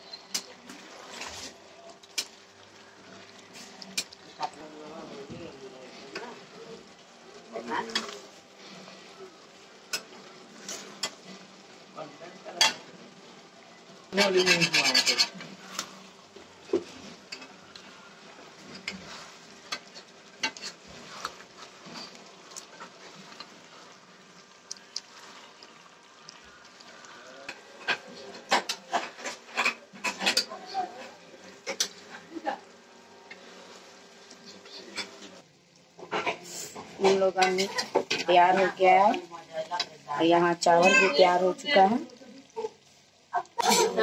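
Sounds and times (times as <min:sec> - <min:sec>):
low sizzle: 0:00.0 - 0:44.0
metal spatula scraping pan: 0:14.1 - 0:16.0.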